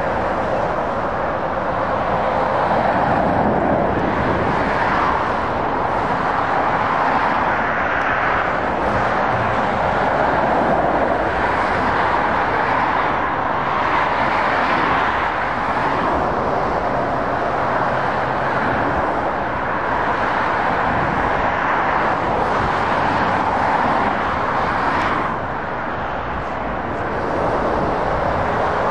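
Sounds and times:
motorway traffic passing: 0.0s - 28.9s.

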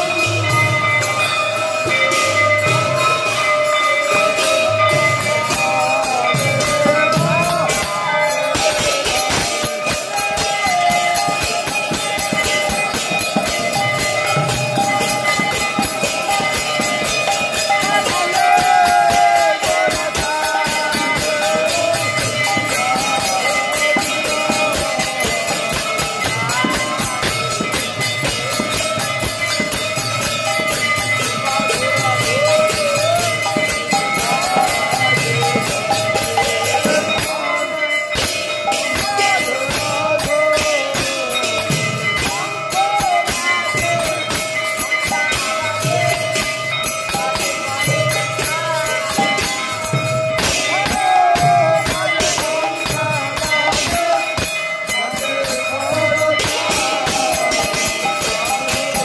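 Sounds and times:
person singing: 31.3s - 44.5s.

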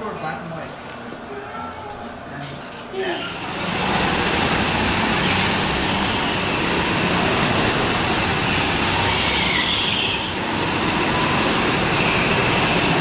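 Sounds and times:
go-kart engines: 3.1s - 13.0s.

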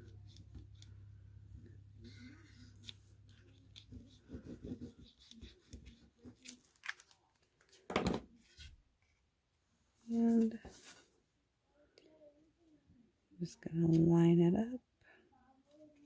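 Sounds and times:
low steady hum: 0.0s - 4.3s.

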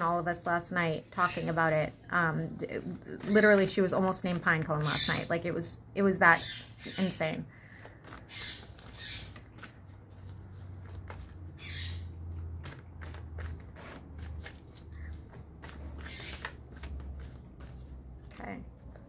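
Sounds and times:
cards being shuffled: 7.0s - 11.6s, 12.2s - 19.0s.

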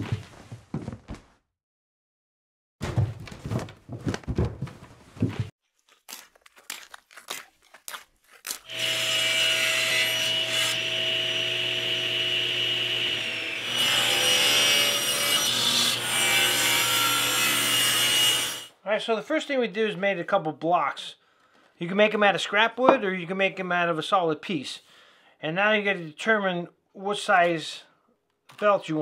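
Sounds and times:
table saw cutting wood: 8.7s - 18.7s.

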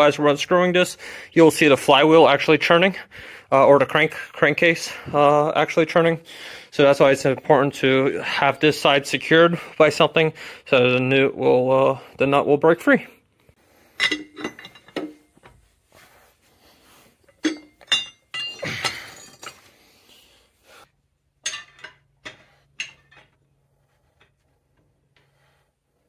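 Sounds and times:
wrenches clanking on metal: 14.0s - 15.3s, 17.2s - 19.7s, 21.4s - 23.6s.

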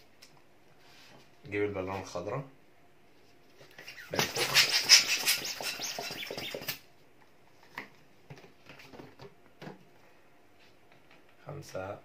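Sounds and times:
balloon latex squeaking: 3.8s - 6.8s.

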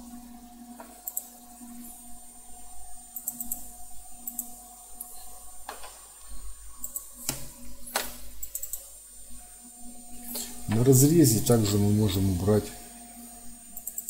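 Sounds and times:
faint electrical hum: 0.0s - 14.0s
computer mouse clicking: 1.0s - 1.4s, 3.1s - 5.1s, 6.8s - 8.9s, 13.8s - 14.0s.

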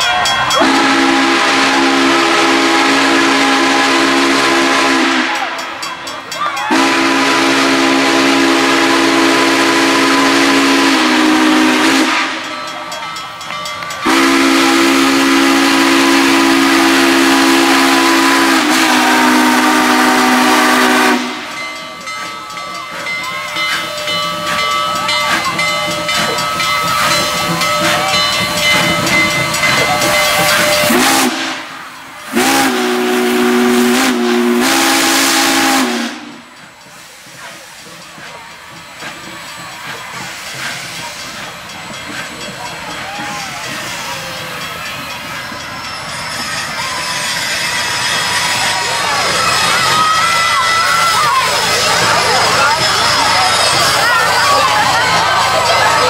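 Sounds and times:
steam locomotive hissing steam: 0.0s - 56.0s
steam whistle blasts: 0.5s - 5.7s, 6.6s - 12.6s, 14.0s - 22.2s, 23.7s - 37.3s.

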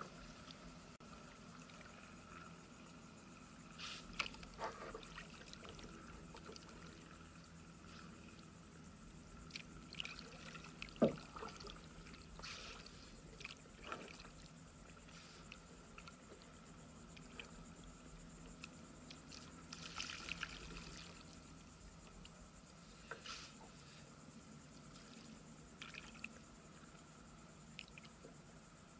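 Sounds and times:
water trickling and splashing: 4.0s - 7.2s, 9.4s - 14.8s, 19.1s - 21.5s.

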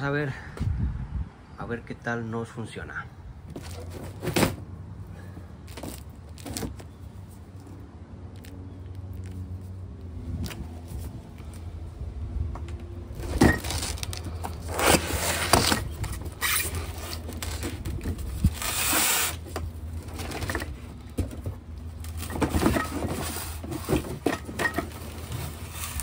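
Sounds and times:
cardboard and styrofoam rustling: 3.5s - 4.7s, 13.2s - 26.0s
styrofoam scraping on concrete: 13.6s - 17.6s, 18.4s - 19.5s.

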